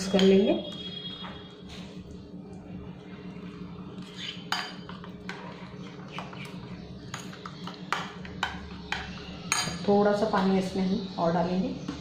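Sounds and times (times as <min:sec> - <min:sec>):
spoon stirring thick batter: 0:00.1 - 0:09.3.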